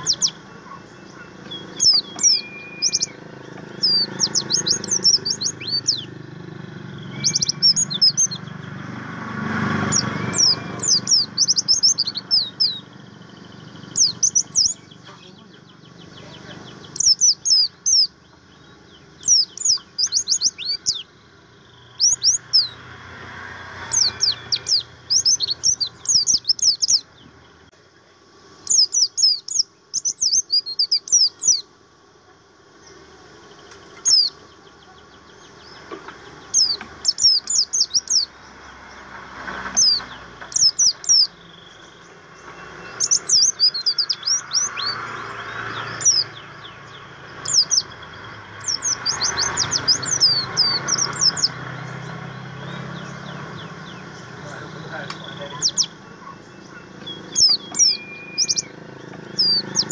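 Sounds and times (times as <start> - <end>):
bird twittering chirps: 0.0 - 27.9, 28.5 - 31.8, 32.7 - 59.9.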